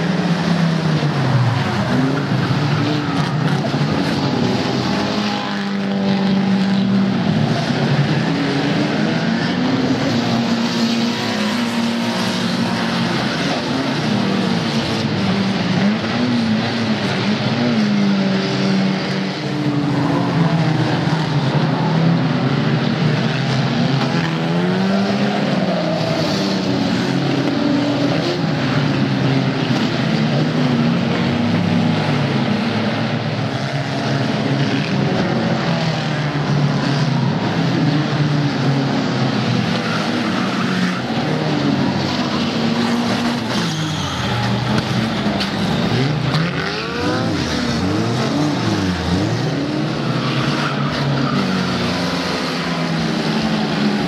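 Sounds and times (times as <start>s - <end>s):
race car engines revving: 0.0s - 54.0s.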